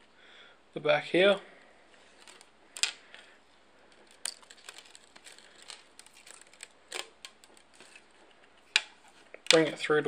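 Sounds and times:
small clicks and ticks: 3.9 - 9.6.

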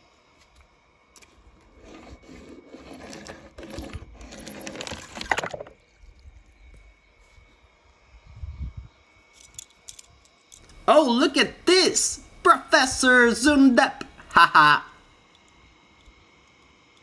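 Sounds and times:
toy car wheels rolling on paper: 1.8 - 5.3.

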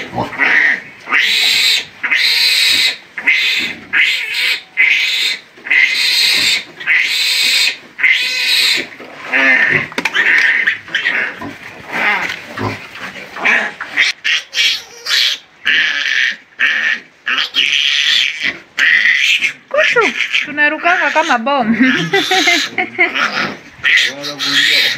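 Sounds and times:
piglet squealing loudly: 0.3 - 11.4, 13.4 - 24.9.

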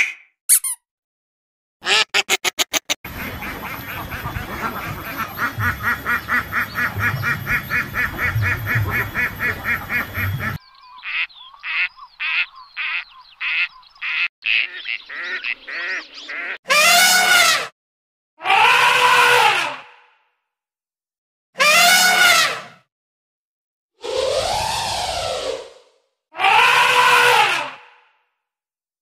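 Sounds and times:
ducks quacking: 1.8 - 16.6.

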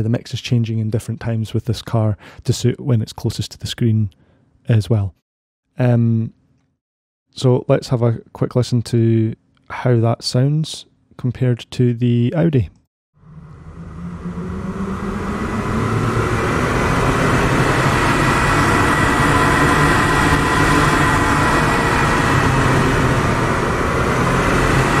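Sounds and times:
sports car engine with reverb: 13.2 - 25.0.

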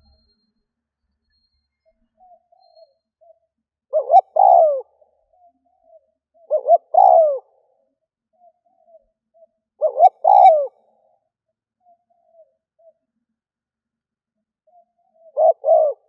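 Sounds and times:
dove cooing: 3.9 - 5.0, 6.4 - 7.6, 9.8 - 10.9, 14.7 - 16.0.

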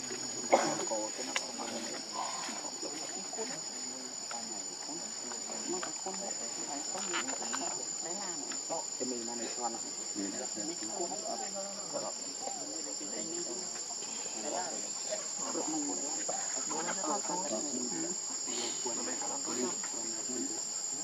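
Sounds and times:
insect chorus drone: 0.0 - 21.0
low wavering chatter: 0.0 - 21.0.

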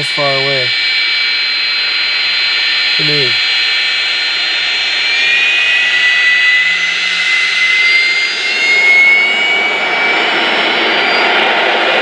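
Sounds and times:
jet engine roar with whine: 0.0 - 12.0.

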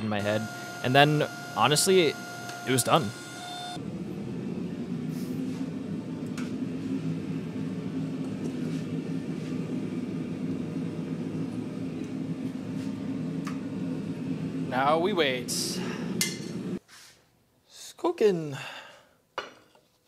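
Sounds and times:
low drone of shop equipment: 0.0 - 17.4.

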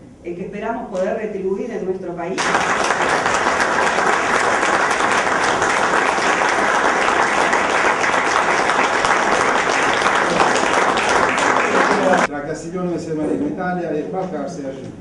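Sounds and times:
crowd applause: 2.4 - 12.3.

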